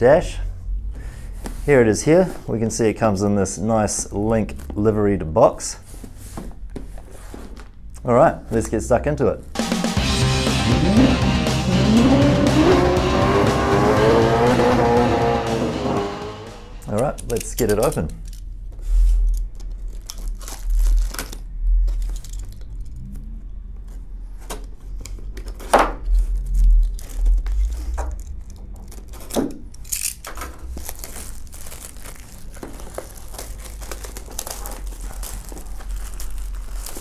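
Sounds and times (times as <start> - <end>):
plastic film crinkling and tearing: 19.5 - 22.7, 26.0 - 29.4, 30.6 - 37.0
utility knife cutting shrink wrap: 30.0 - 37.0.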